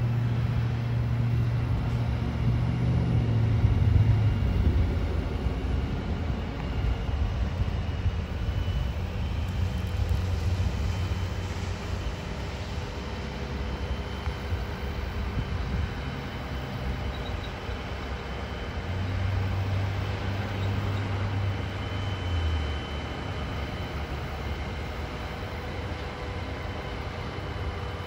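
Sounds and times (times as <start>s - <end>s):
diesel engine droning: 0.0s - 28.0s
passing road traffic: 9.3s - 27.7s.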